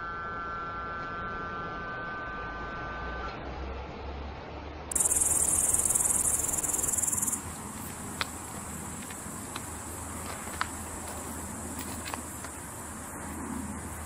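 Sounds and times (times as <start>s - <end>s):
faint steady high tone: 0.0s - 3.4s, 4.9s - 7.4s
insects trilling: 4.9s - 14.0s.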